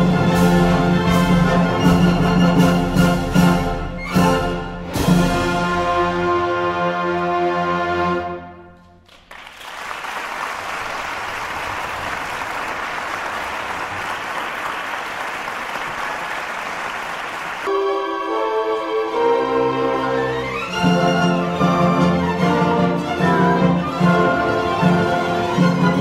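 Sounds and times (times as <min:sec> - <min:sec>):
orchestral background music: 0:00.0 - 0:09.0, 0:17.7 - 0:26.0.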